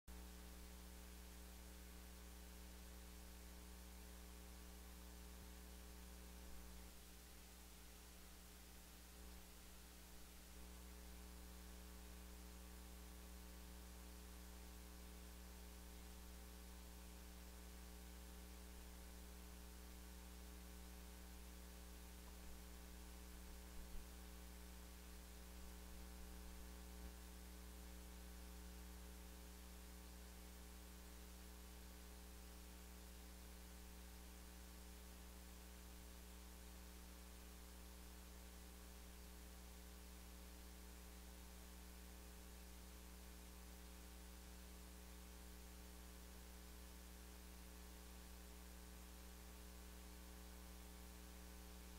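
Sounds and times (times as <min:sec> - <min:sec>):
electrical mains hum with hiss: 0:00.1 - 0:51.9.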